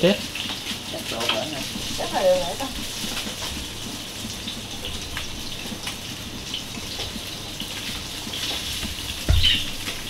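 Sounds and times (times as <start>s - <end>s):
fish sizzling in oil: 0.0s - 10.0s
oil popping: 0.0s - 10.0s.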